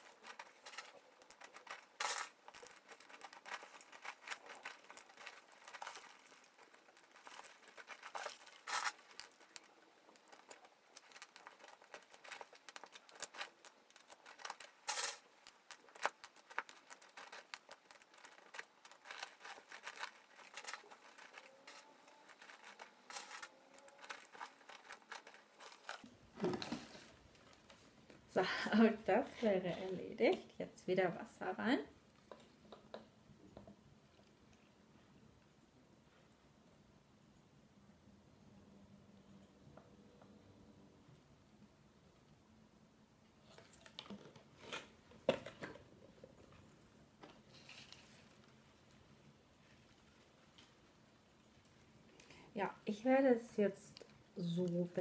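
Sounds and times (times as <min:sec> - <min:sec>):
clay pebbles clicking and rattling: 0:00.0 - 0:30.5, 0:43.5 - 0:55.0.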